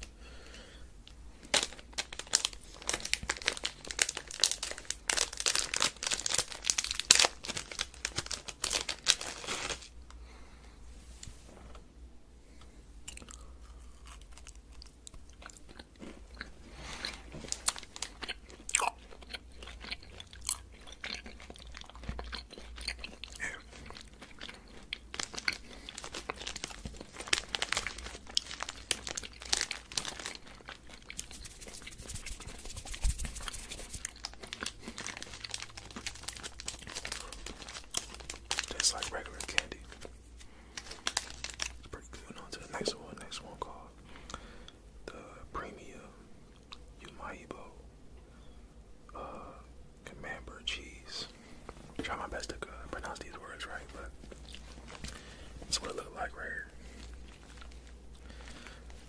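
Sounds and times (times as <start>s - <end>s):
gummy being chewed: 13.0s - 41.9s, 52.0s - 55.9s, 56.8s - 59.0s.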